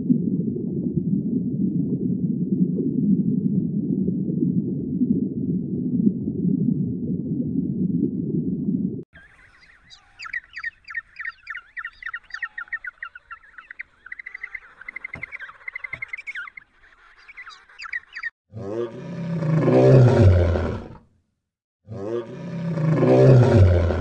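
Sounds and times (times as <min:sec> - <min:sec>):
small birds chirping: 0:09.2 - 0:18.4
deep animal roar: 0:18.5 - 0:21.0, 0:21.9 - 0:24.0.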